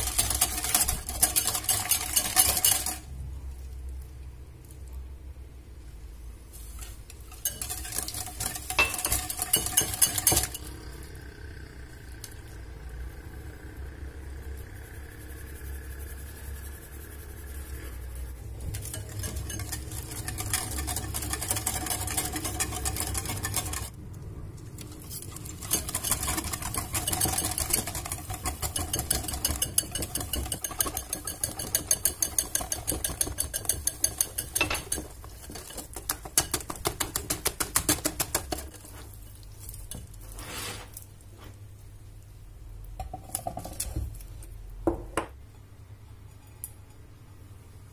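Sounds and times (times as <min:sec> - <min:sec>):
whisk beating batter in bowl: 0:00.0 - 0:03.1, 0:07.3 - 0:11.3, 0:12.2 - 0:23.9, 0:24.8 - 0:40.2.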